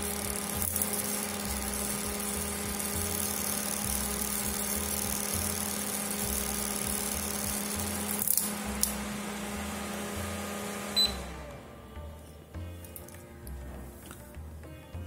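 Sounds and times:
mini fan motor hum: 0.0 - 12.6
short high beep: 10.9 - 11.3.

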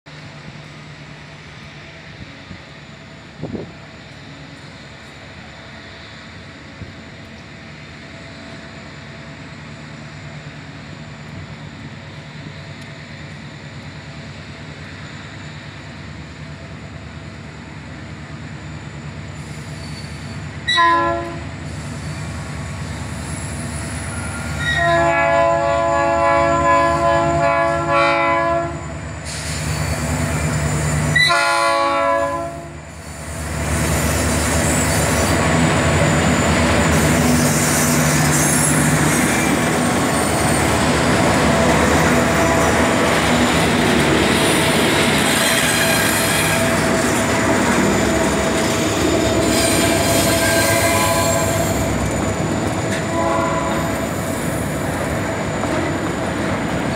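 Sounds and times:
freight train rolling past: 0.1 - 56.9
locomotive horn blast: 20.7 - 21.5, 24.6 - 28.9, 31.1 - 32.8, 49.5 - 51.9, 53.0 - 54.2.

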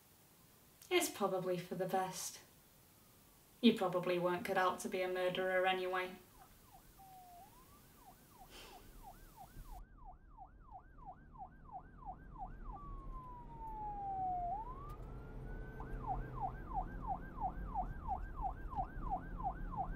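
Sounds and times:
police siren yelp and wail: 6.2 - 19.9.

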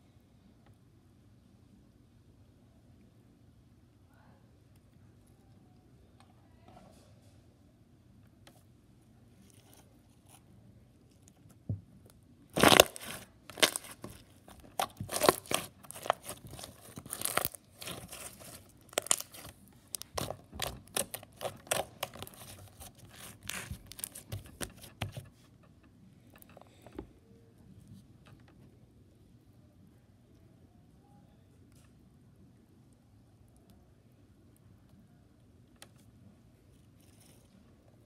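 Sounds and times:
slime crackling and popping: 12.5 - 24.9.

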